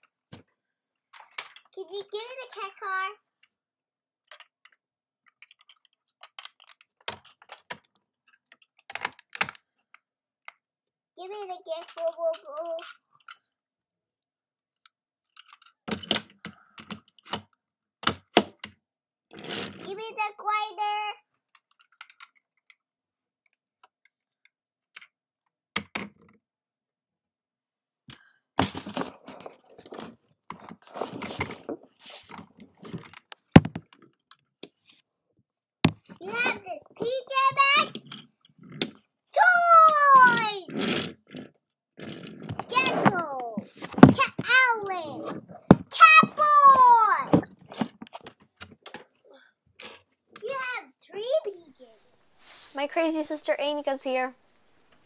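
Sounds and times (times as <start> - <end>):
plastic toys rummaged: 1.1 - 2.7, 4.3 - 9.3, 28.6 - 34.2
plastic toys clicking and knocking: 1.1 - 2.8, 4.2 - 10.7, 11.3 - 13.6, 15.2 - 18.8, 21.3 - 22.9, 23.5 - 26.4, 28.1 - 35.0, 35.9 - 49.2.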